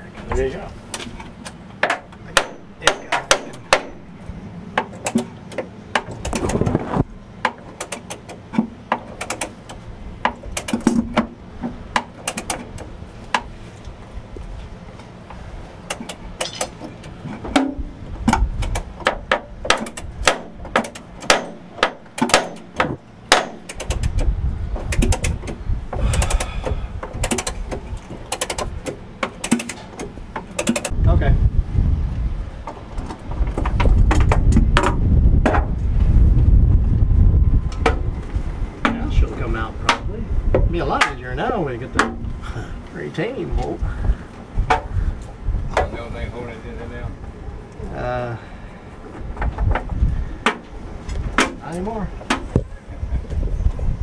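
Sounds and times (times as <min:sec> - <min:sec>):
low rumble: 0:05.8 - 0:07.4, 0:30.9 - 0:54.0
ratchet wrench clicking: 0:26.1 - 0:26.5, 0:28.3 - 0:29.8, 0:30.5 - 0:30.9.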